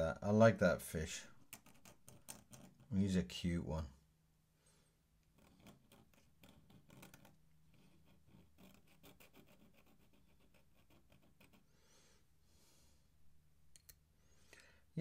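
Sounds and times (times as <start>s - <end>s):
brush scratching on paper: 5.4s - 11.7s.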